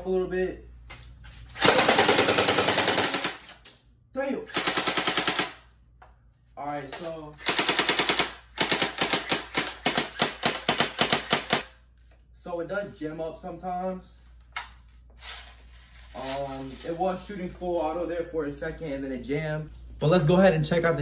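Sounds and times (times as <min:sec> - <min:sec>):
airsoft rifle firing bursts: 0:01.6 - 0:03.4, 0:04.5 - 0:05.6, 0:07.4 - 0:11.7.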